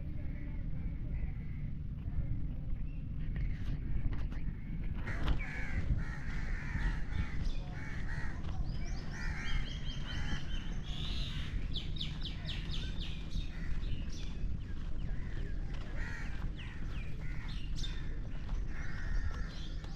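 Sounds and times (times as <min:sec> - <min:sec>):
low background rumble: 0:00.0 - 0:19.9
small birds chirping: 0:00.1 - 0:19.9
crows cawing: 0:05.0 - 0:11.8, 0:13.3 - 0:14.2, 0:14.8 - 0:19.9.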